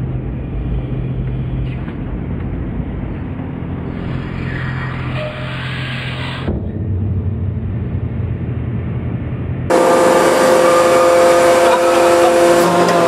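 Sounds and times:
hydraulic press low rumble: 0.0s - 13.0s
hydraulic press whine: 9.7s - 13.0s.

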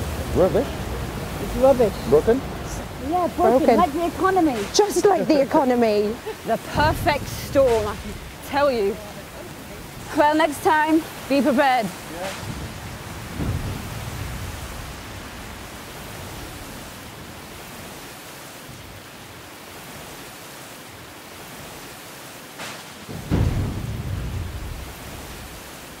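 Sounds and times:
thunderclap and rumble: 0.0s - 17.9s, 23.1s - 26.0s
steady rain hiss: 0.0s - 26.0s.

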